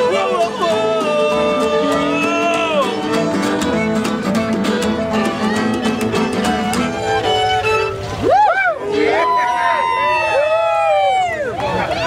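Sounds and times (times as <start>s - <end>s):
fiddles bowing melody: 0.0s - 8.2s
guitar strumming: 0.0s - 8.2s.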